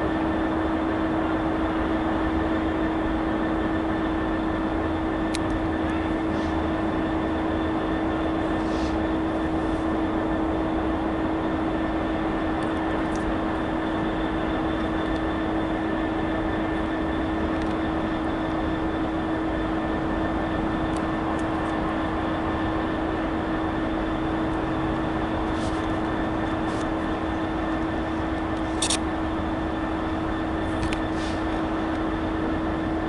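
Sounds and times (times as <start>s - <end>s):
diesel locomotive engine droning: 0.0s - 33.0s.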